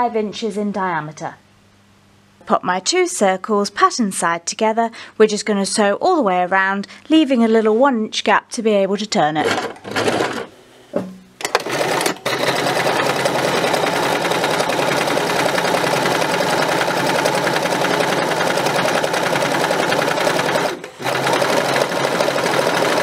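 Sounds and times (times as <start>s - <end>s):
sewing machine stitching: 9.4s - 10.5s, 11.4s - 23.0s.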